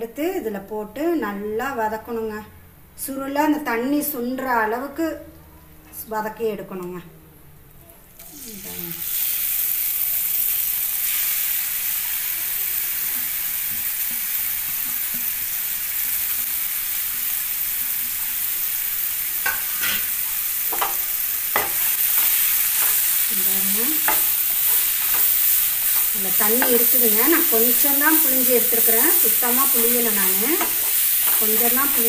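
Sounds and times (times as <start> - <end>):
food sizzling in hot fat: 8.2 - 32.0
utensil clicking on pan: 19.4 - 20.1, 20.7 - 23.4, 24.0 - 32.0.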